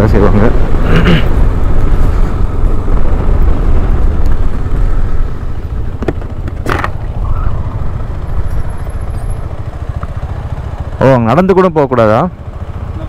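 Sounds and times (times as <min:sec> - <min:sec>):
wind rumble on microphone: 0:00.0 - 0:10.1
motorcycle engine running: 0:00.0 - 0:13.0.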